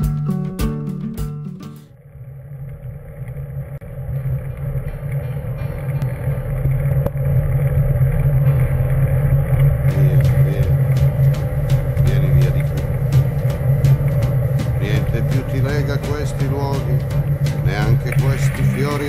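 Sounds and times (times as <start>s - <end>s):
music: 0.0s - 2.0s, 4.2s - 19.0s.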